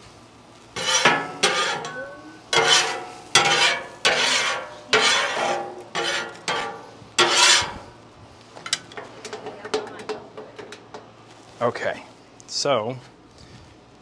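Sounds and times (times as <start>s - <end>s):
metal spatula scraping griddle: 0.7s - 8.0s.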